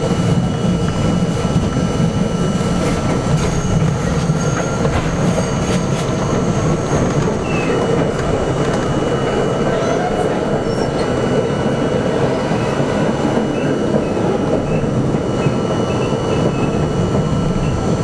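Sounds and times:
train rumbling on steel track: 0.0 - 18.0
wheel squeal: 3.4 - 7.9, 9.8 - 11.2.

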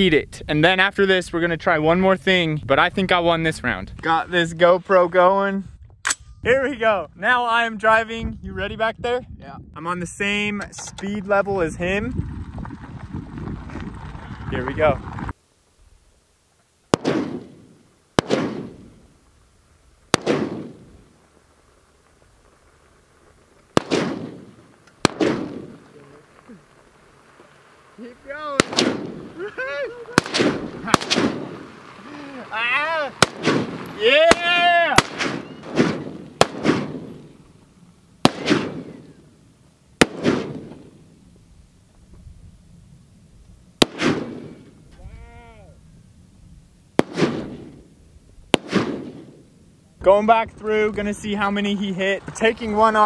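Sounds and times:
rifle shots echoing: 16.9 - 19.1, 20.1 - 21.2, 23.7 - 26.3, 28.4 - 32.0, 33.0 - 37.4, 38.2 - 39.4, 40.0 - 41.1, 43.8 - 44.8, 47.0 - 47.9, 48.5 - 49.6.

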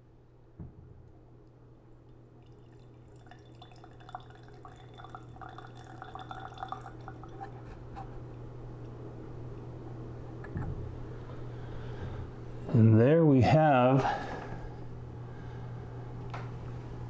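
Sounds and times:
liquid trickling into glass: 2.0 - 7.7.

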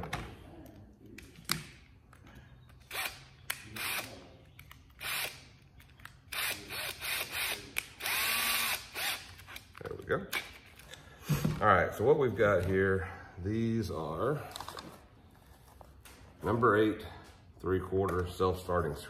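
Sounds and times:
cordless drill motor whine: 6.4 - 9.2.

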